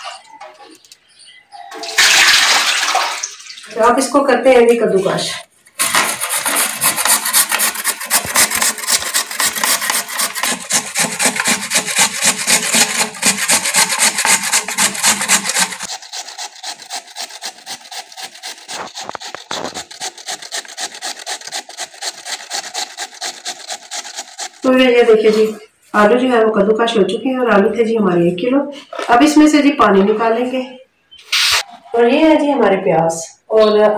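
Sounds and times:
potatoes grated on grater: 0:05.8 - 0:25.4.

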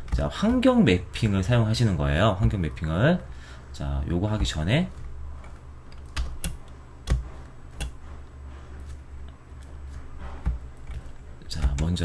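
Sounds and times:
steady low hum: 0:00.0 - 0:12.0
computer mouse and keyboard clicks: 0:04.4 - 0:08.1.

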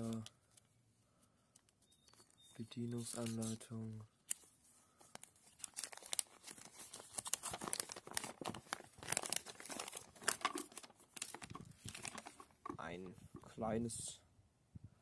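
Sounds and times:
paper crinkling and rustling: 0:00.0 - 0:00.7, 0:01.6 - 0:12.8.

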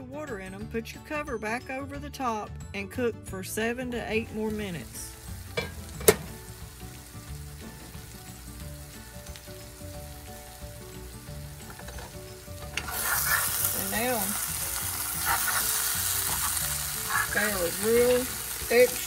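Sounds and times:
potatoes sizzling in a skillet: 0:04.2 - 0:19.0
spatula scraping a skillet: 0:11.6 - 0:18.2.

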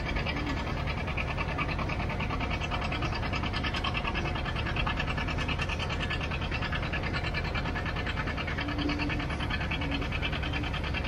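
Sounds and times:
short low hum: 0:00.0 - 0:11.0
tractor engine chuffing: 0:00.0 - 0:11.0.

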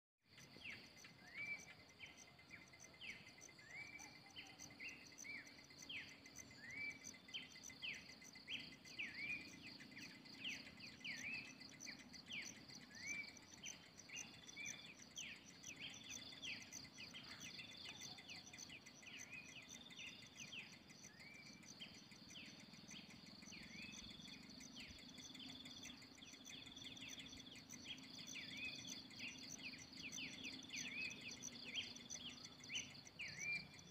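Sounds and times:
birds whistling: 0:05.3 - 0:21.6, 0:23.6 - 0:33.9.

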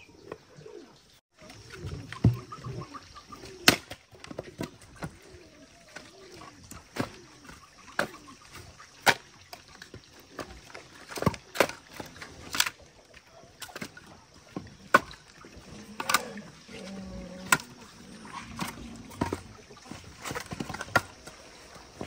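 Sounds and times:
firewood pieces knocking together: 0:03.6 - 0:06.0, 0:18.5 - 0:21.4.

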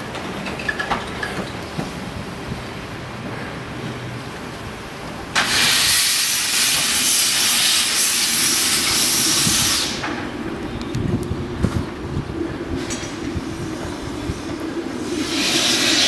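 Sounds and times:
steam locomotive hissing steam: 0:05.3 - 0:10.5, 0:12.6 - 0:16.0.

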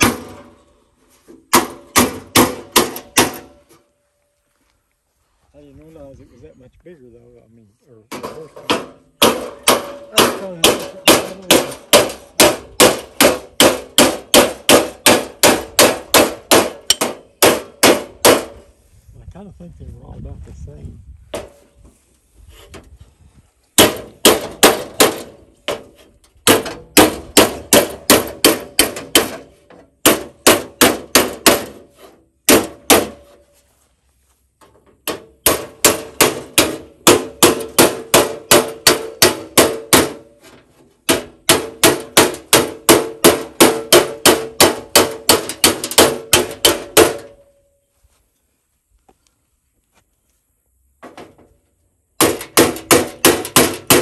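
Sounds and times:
hammer beating on sheet steel: 0:00.0 - 0:00.6, 0:01.4 - 0:03.6, 0:08.2 - 0:18.7, 0:23.8 - 0:33.4, 0:35.0 - 0:40.4, 0:41.0 - 0:47.5, 0:52.2 - 0:54.0.

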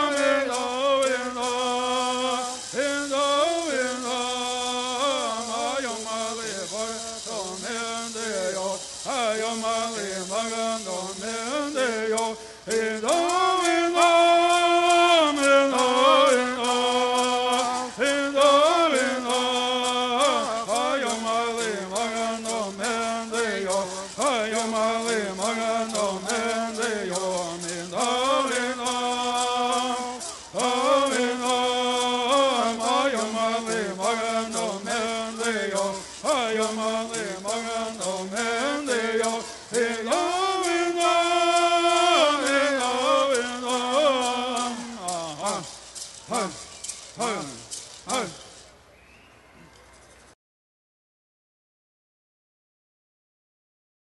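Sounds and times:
hand rattles shaking: 0:00.0 - 0:48.8
group chanting in unison: 0:13.6 - 0:45.7.

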